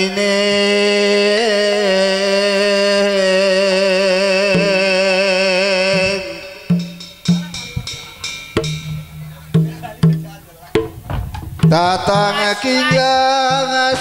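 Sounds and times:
hand drum strokes: 5.9s - 14.0s
low instrument tone: 6.1s - 13.2s.

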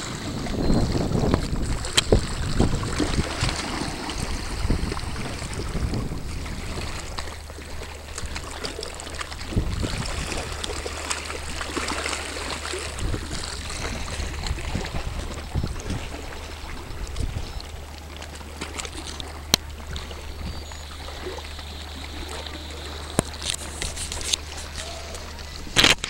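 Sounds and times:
wind gusting on microphone: 0.0s - 7.2s, 9.4s - 10.6s, 12.9s - 17.6s
water splashing and lapping: 0.0s - 26.0s
steady low hum: 0.1s - 26.0s.

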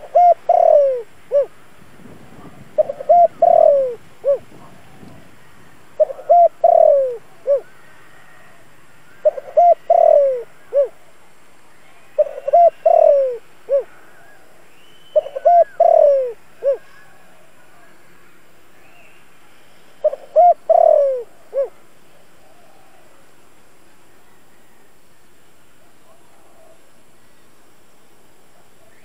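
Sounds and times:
dove cooing: 0.0s - 1.6s, 2.3s - 5.3s, 6.0s - 8.6s, 9.2s - 11.0s, 12.2s - 14.5s, 15.2s - 17.4s, 20.0s - 21.8s.

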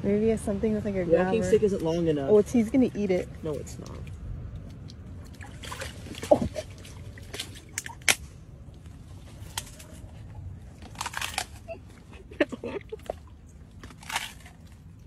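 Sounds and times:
phone cracking and crunching: 10.8s - 11.7s, 13.8s - 14.9s.

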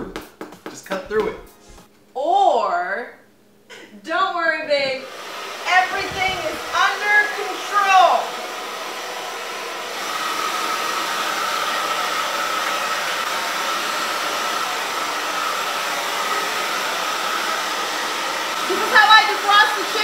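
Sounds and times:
hair dryer running: 4.8s - 20.0s.

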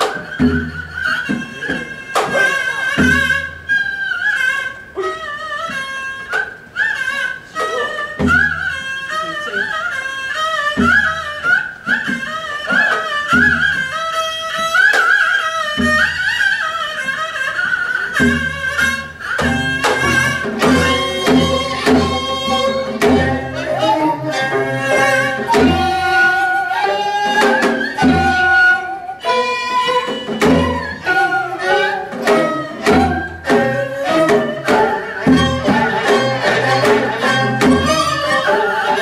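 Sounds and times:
drum strokes: 0.0s - 39.0s
fiddle: 0.0s - 39.0s
flute: 0.0s - 39.0s
reed pipe: 0.0s - 39.0s
plucked zithers: 18.0s - 39.0s.

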